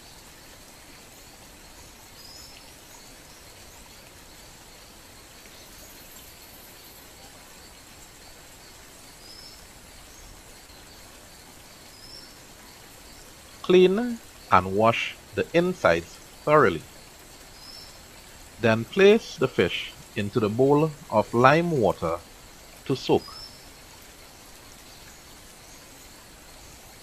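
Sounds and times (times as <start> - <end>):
faint hiss: 0.0 - 27.0
bird chirping: 17.5 - 22.2, 22.9 - 23.7.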